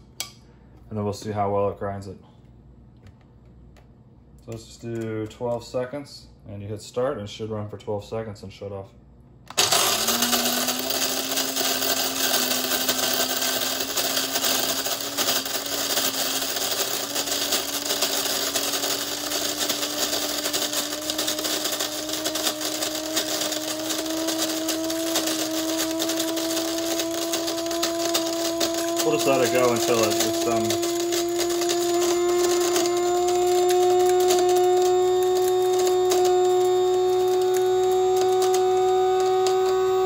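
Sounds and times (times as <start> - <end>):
coffee grinder motor whine: 9.5 - 40.0.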